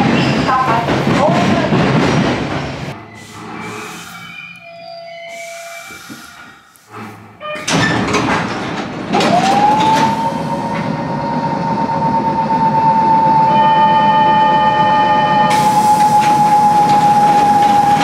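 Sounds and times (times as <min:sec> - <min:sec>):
pneumatic door rush of air: 0:03.0 - 0:04.6, 0:05.3 - 0:11.0, 0:15.5 - 0:18.0.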